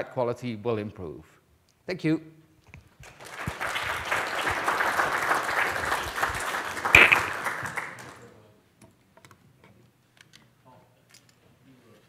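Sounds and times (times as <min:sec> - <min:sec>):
audience applauding: 0:03.0 - 0:08.2
sharp knock: 0:06.9 - 0:07.4.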